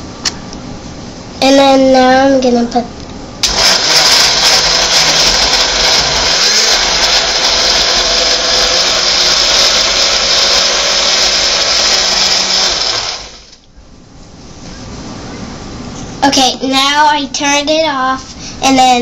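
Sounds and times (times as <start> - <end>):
blender running: 3.4 - 13.6.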